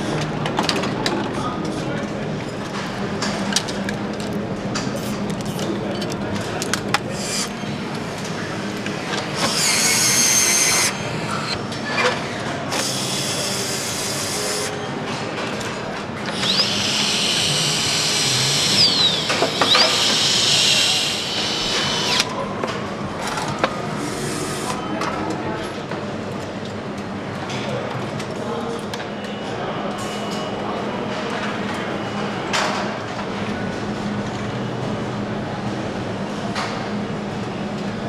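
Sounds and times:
factory hum: 0.0s - 38.0s
power tools driving fasteners: 9.4s - 11.6s, 16.3s - 22.3s.

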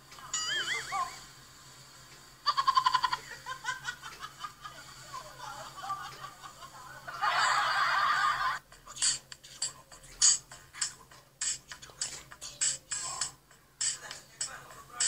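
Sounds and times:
person laughing: 2.5s - 8.6s.

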